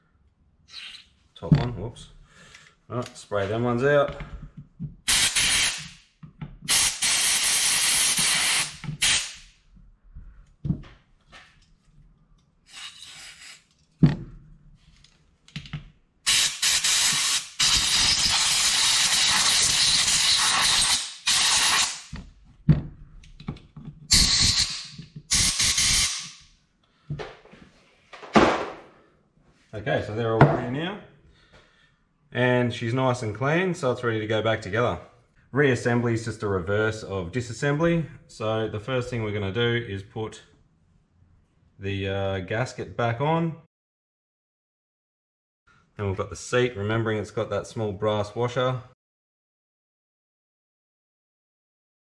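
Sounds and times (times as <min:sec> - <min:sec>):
compressed air blow gun hissing: 0:05.1 - 0:05.9, 0:06.7 - 0:09.4, 0:16.3 - 0:22.1, 0:24.1 - 0:26.4.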